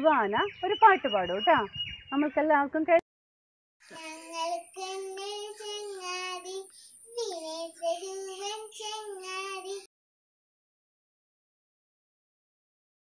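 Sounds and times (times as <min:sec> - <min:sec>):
girl singing unaccompanied: 0:03.9 - 0:09.9.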